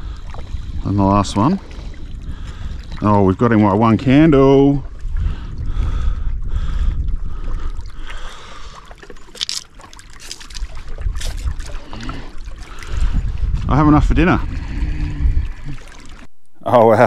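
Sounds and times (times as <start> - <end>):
wind rumbling on microphone: 0.0 - 16.9
water washing among rocks: 9.1 - 14.3.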